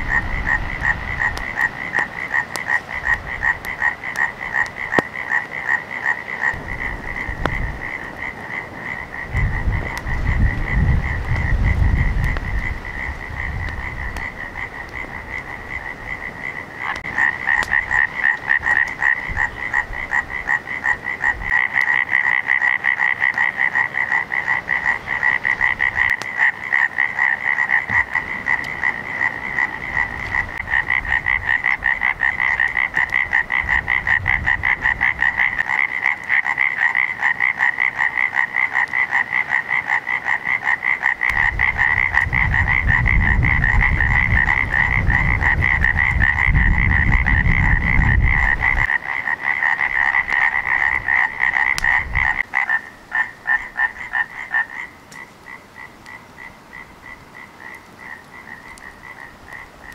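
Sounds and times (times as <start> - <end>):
frogs calling: 0.0 - 59.9.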